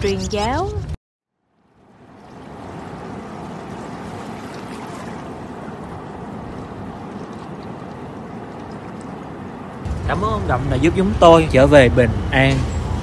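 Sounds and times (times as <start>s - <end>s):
wind: 0.0s - 13.0s
sea water washing: 1.4s - 9.9s.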